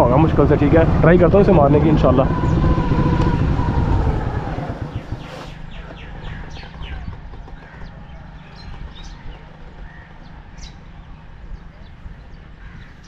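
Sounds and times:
motor vehicle passing: 0:00.0 - 0:07.4
low steady rumble: 0:00.0 - 0:13.0
small birds chirping: 0:02.3 - 0:13.0.

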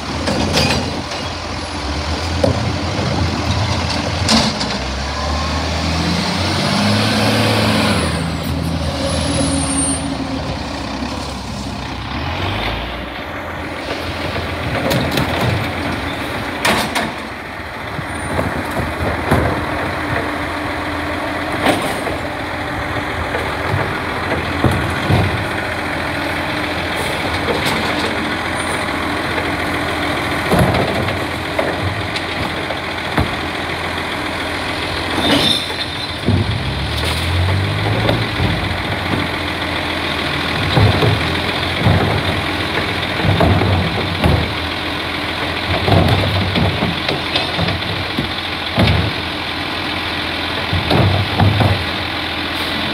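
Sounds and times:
garbage truck diesel engine: 0:00.0 - 0:52.9
clunks from arm and bins: 0:00.1 - 0:01.3, 0:13.2 - 0:17.4, 0:21.5 - 0:22.3, 0:23.2 - 0:29.5, 0:30.4 - 0:33.6, 0:40.4 - 0:49.4, 0:50.5 - 0:52.9.

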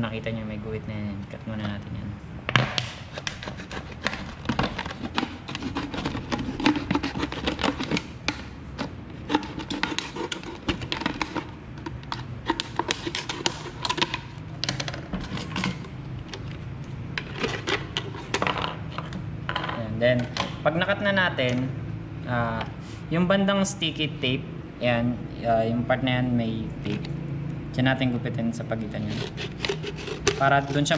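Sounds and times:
knife cutting plastic bottle: 0:02.8 - 0:15.9, 0:28.9 - 0:30.9
scissors cutting plastic: 0:02.8 - 0:16.5, 0:28.9 - 0:30.9.

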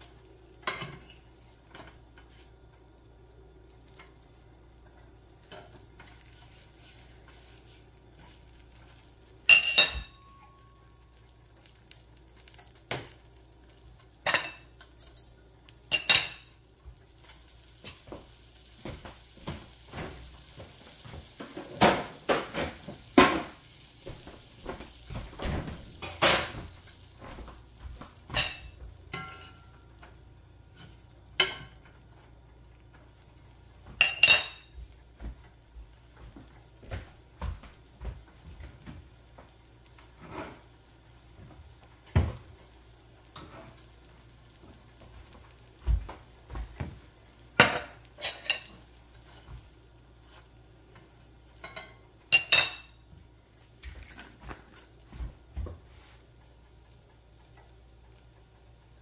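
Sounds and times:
dishes and utensils clinking: 0:00.6 - 0:02.0, 0:09.5 - 0:10.8, 0:14.2 - 0:15.3, 0:15.9 - 0:16.6, 0:25.1 - 0:27.5, 0:28.3 - 0:29.8, 0:30.8 - 0:31.9, 0:33.9 - 0:34.8, 0:47.6 - 0:48.8, 0:51.6 - 0:53.0.

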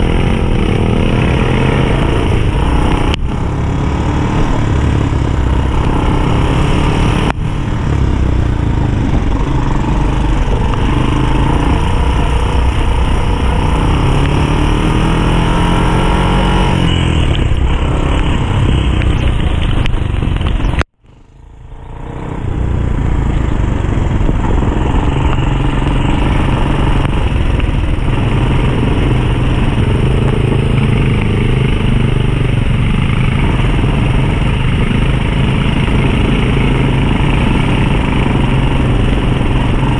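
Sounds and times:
atv engine running: 0:00.0 - 0:39.9
steady rushing noise: 0:00.0 - 0:39.9.

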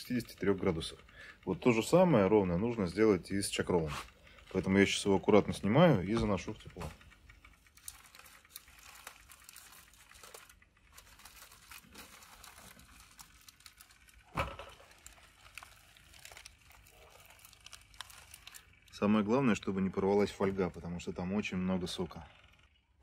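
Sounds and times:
aluminium foil crinkling: 0:06.3 - 0:21.0.

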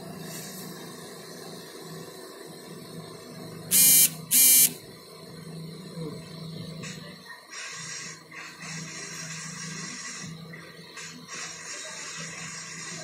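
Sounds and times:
harsh electronic beeps: 0:03.7 - 0:04.8
hot air gun humming: 0:03.7 - 0:04.8.

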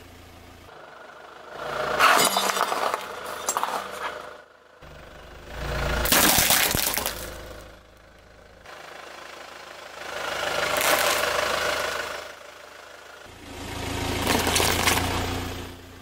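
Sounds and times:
car engine running low: 0:00.0 - 0:16.0
car tyre rolling over candies: 0:01.6 - 0:04.4, 0:06.0 - 0:07.6, 0:10.6 - 0:11.8, 0:14.1 - 0:15.3.

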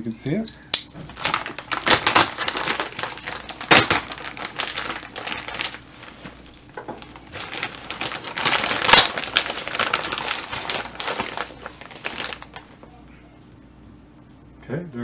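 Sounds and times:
plastic bag crinkling: 0:00.9 - 0:12.9.

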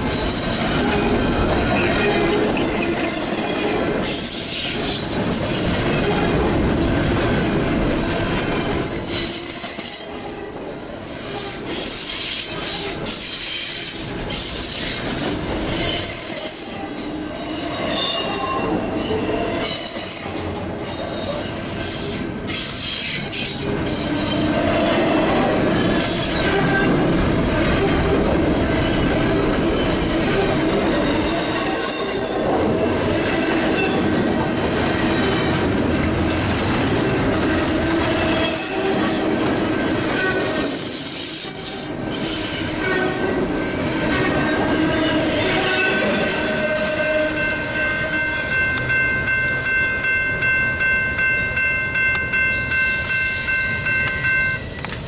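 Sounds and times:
train wheels rumbling on rails: 0:00.0 - 0:55.0
wheel squeals: 0:00.1 - 0:04.6.

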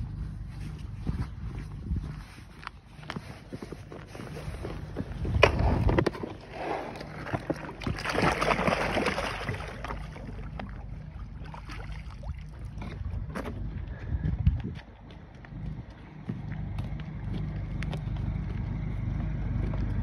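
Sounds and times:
fish splashing into water: 0:06.9 - 0:12.8.

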